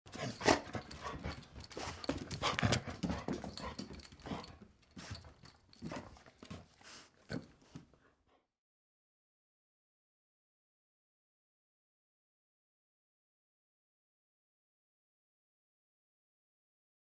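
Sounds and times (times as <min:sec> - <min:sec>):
collar jingling: 0:00.1 - 0:07.7
dog feet clattering on tile: 0:00.1 - 0:07.9
dog snorting and breathing: 0:00.1 - 0:08.0.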